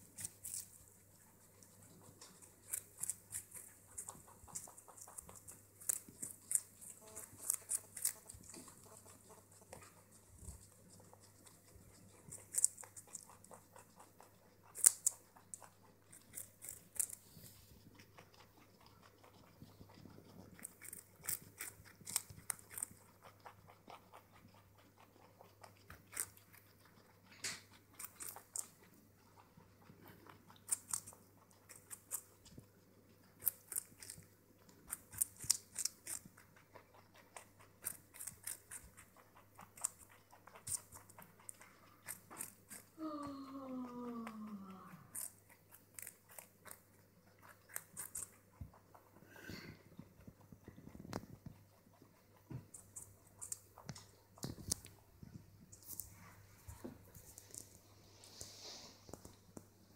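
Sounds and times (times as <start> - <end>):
animals crunching carrot: 0.0 - 59.9.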